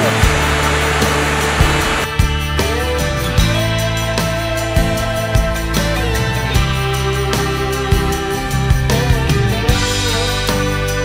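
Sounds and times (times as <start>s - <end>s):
waterfall rushing: 0.0s - 2.1s
background music: 0.0s - 11.0s.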